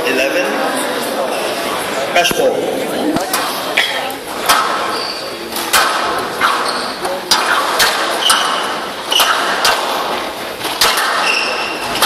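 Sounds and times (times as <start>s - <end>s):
squash ball strikes: 4.4s - 5.0s, 5.6s - 12.0s
shoe squeaks on court floor: 4.8s - 5.4s, 6.4s - 7.1s, 11.2s - 11.9s.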